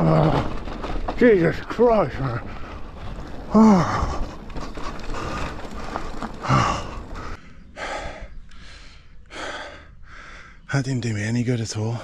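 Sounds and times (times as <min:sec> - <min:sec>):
man panting heavily: 0:06.4 - 0:10.7.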